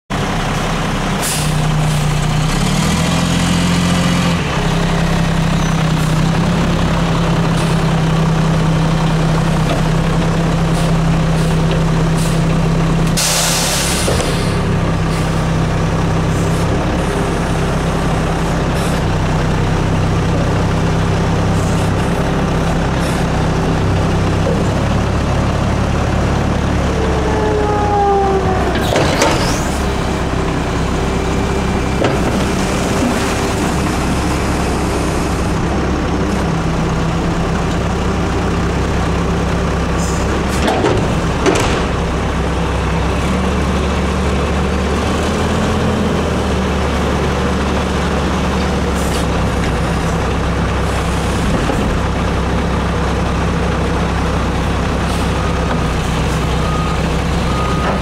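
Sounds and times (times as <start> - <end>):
garbage truck engine running: 0.1 - 58.0
short falling squeaks: 27.0 - 30.0.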